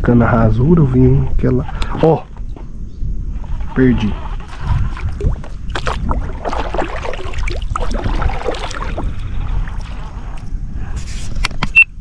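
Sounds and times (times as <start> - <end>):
wind rumbling on microphone: 0.0 - 12.0
lake water lapping on boat: 3.4 - 10.4.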